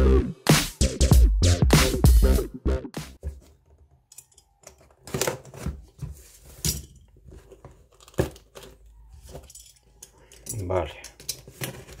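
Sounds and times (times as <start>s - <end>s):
cardboard scraping and rustling: 4.9s - 9.4s, 11.4s - 12.0s.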